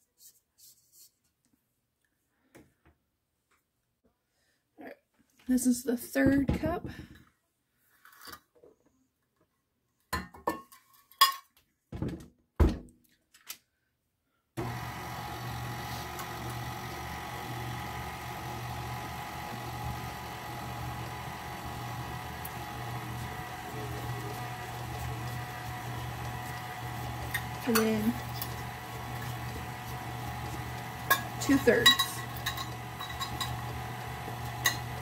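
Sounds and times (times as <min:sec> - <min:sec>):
stand mixer humming: 0:14.6 - 0:35.0
knocks and clinks in steel bowl: 0:31.1 - 0:33.6.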